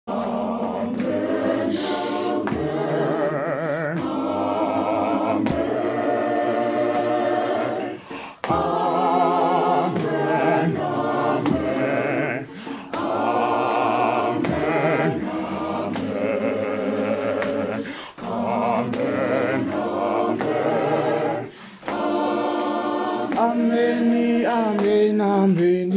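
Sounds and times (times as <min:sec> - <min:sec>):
mixed choir singing in harmony: 0:00.1 - 0:25.2.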